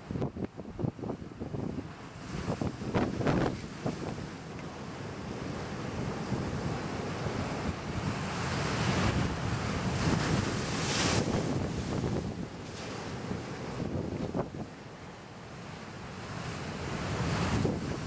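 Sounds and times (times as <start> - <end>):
wind noise on microphone: 0.0 - 4.4, 5.1 - 14.8, 16.3 - 18.0
surf breaking over boulders: 2.3 - 4.7, 6.0 - 14.7, 16.5 - 18.0.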